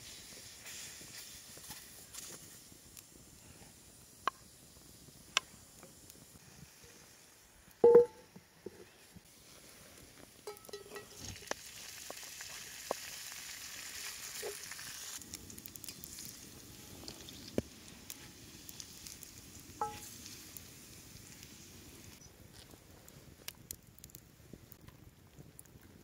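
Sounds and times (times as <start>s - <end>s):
bacon sizzling in a pan: 0.0s - 7.4s, 9.3s - 22.2s
scraping in skillet: 8.8s - 11.6s.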